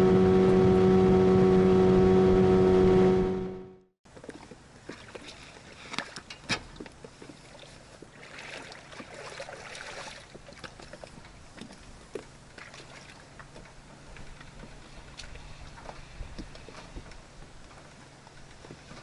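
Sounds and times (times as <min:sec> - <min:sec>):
water sloshing: 0:04.1 - 0:19.0.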